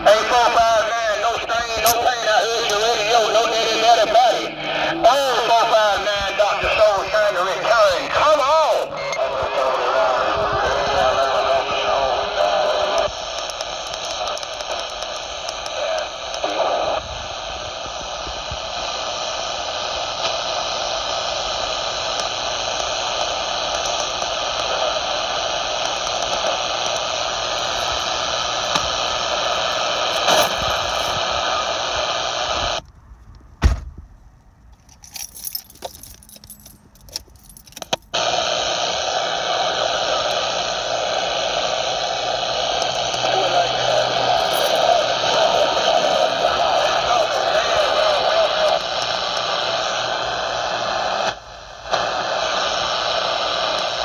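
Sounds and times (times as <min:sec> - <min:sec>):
radio static hiss: 0:00.0 - 0:32.8, 0:37.4 - 0:54.0
radio clicks: 0:00.4 - 0:04.4, 0:05.0 - 0:19.0, 0:19.7 - 0:33.5, 0:36.8 - 0:54.0.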